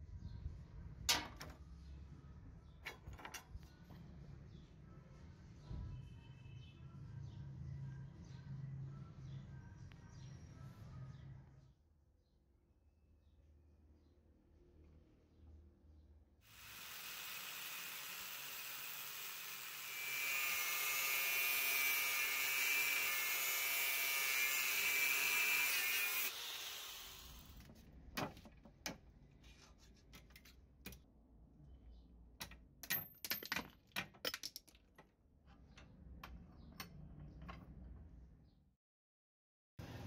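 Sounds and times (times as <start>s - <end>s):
angle grinder cutting steel: 16.5s - 27.6s.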